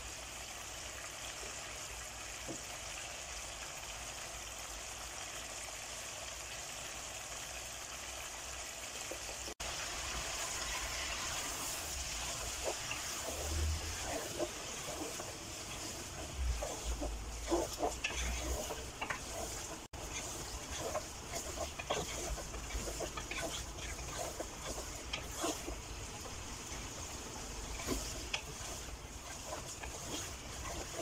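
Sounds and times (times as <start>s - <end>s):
chicken sizzling in a pot: 0.0s - 31.0s
wooden spatula scraping a pot: 9.1s - 31.0s.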